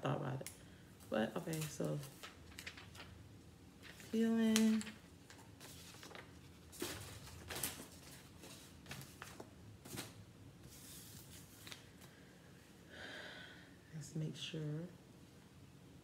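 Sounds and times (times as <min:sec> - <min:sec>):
plastic film crinkling: 0:01.1 - 0:03.2, 0:03.8 - 0:10.2.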